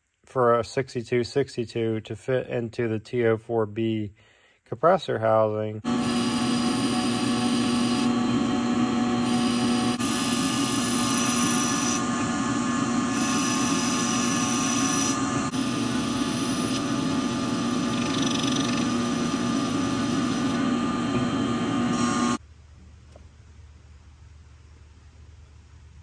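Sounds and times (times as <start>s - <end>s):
metal lathe machining: 5.9s - 22.4s.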